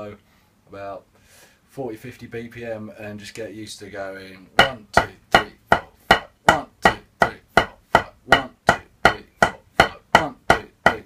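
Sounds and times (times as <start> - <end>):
drumsticks striking practice pad: 4.6 - 11.0.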